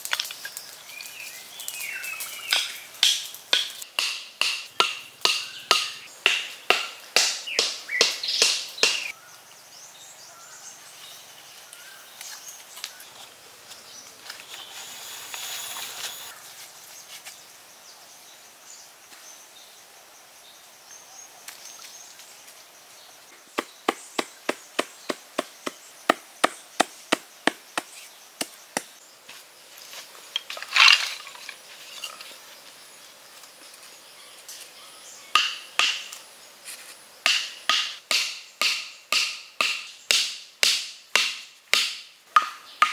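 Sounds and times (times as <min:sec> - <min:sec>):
faint outdoor ambience: 0:00.0 - 0:42.9
wooden club knocking stakes: 0:02.5 - 0:09.1, 0:35.4 - 0:36.2, 0:37.3 - 0:42.9.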